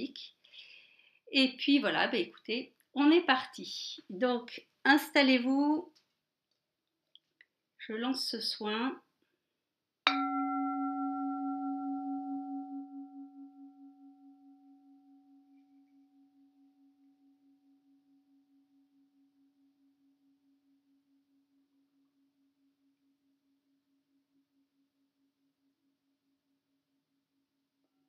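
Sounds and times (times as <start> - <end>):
singing bowl ringing: 10.1 - 21.2.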